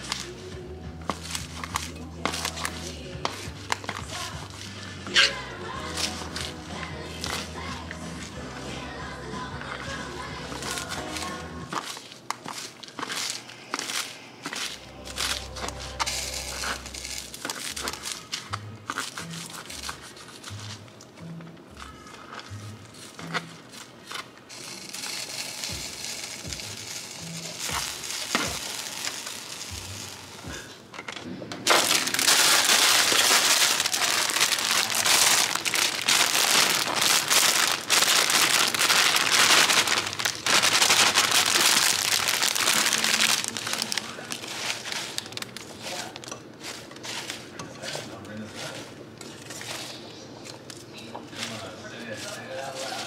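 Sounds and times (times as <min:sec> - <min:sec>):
frying sizzling in a pan: 0:24.5 - 0:30.7, 0:31.8 - 0:46.1.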